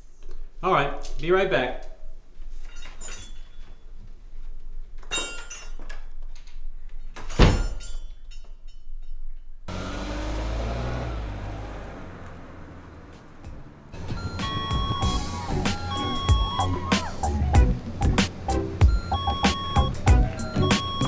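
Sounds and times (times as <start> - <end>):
car engine starting and pulling away: 9.7 - 21.0.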